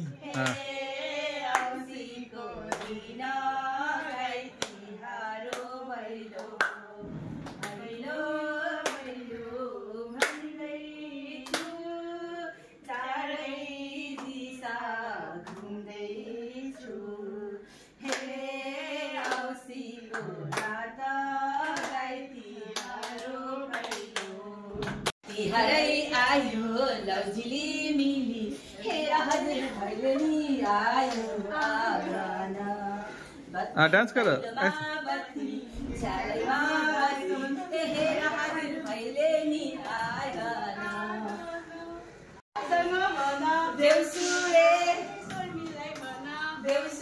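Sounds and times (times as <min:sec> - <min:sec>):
women singing folk song: 0:00.0 - 0:33.8, 0:34.5 - 0:47.0.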